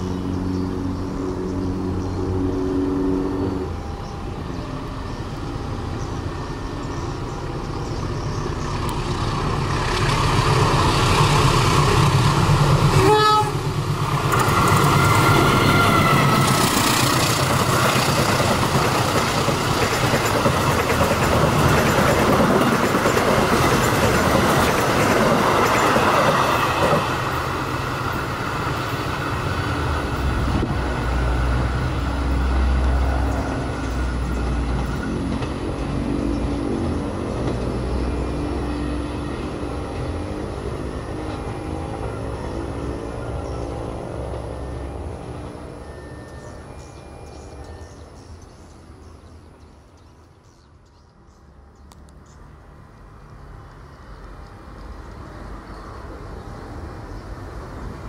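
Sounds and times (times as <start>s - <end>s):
diesel locomotive engine running: 0.0s - 49.5s
train wheels rumbling and clattering: 6.0s - 50.0s
train horn: 12.9s - 13.8s, 14.8s - 16.8s.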